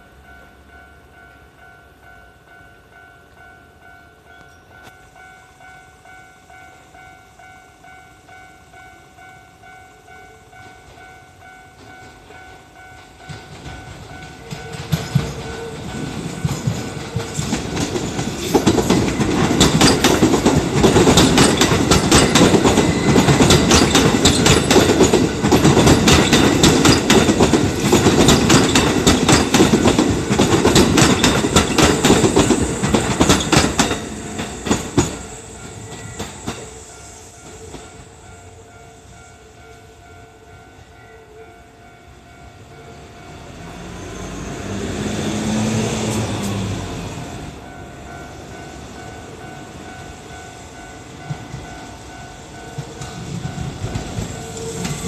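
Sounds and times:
train passing: 0.0 - 55.0
wheels clattering over rail joints: 13.0 - 36.6.

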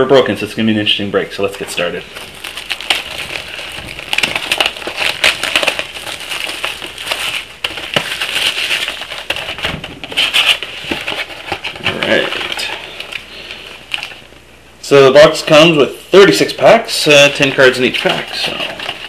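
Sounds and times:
plastic wrap crinkling and tearing: 1.7 - 14.3, 17.1 - 19.0.

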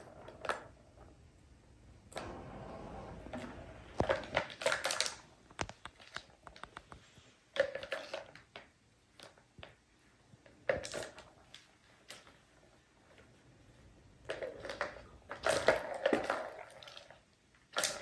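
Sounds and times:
balls rattling in plastic toy: 14.2 - 18.0.

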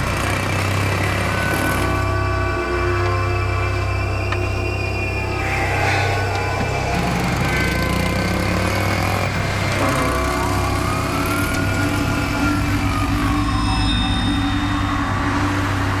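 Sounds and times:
thin tone rising and falling: 5.2 - 16.0.

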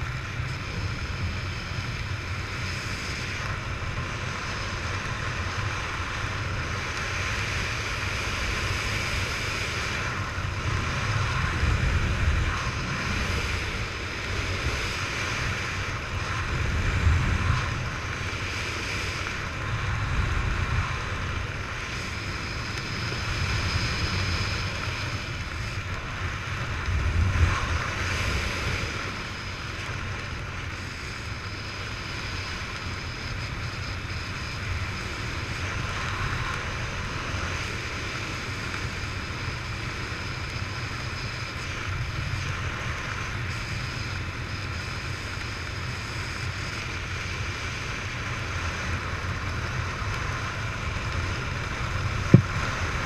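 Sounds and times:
wind rushing on microphone: 0.0 - 53.0.

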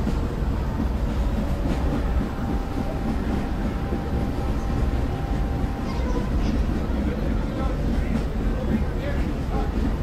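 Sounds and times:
model trains rumbling: 0.0 - 10.0.

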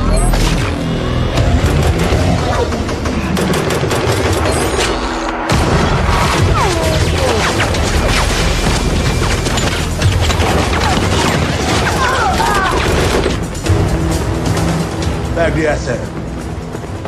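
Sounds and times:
film music score: 0.0 - 17.0
booms and crashes: 5.4 - 13.4.

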